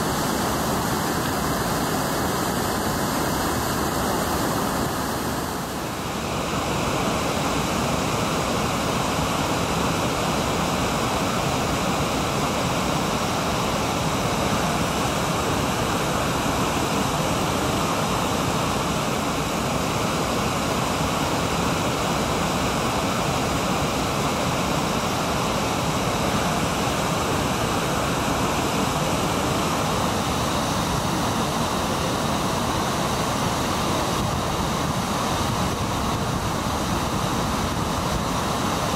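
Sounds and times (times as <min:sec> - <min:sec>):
waterfall and river rapids rushing: 0:00.0 - 0:38.9.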